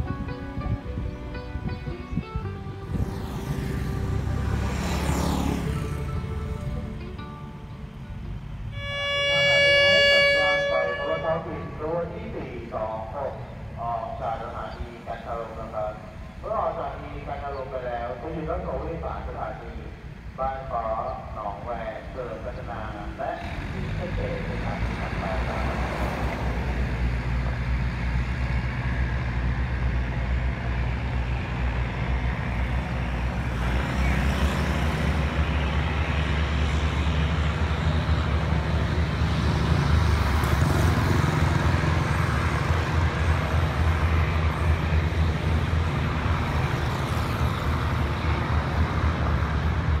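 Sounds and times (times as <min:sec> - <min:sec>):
train passing: 0:00.0 - 0:50.0.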